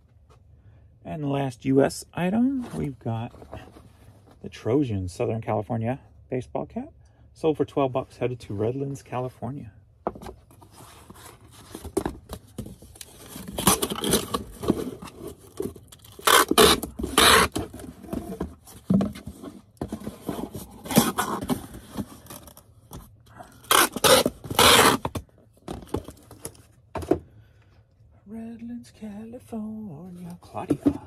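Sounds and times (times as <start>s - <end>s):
packaging rustling and scraping: 10.2s - 26.8s.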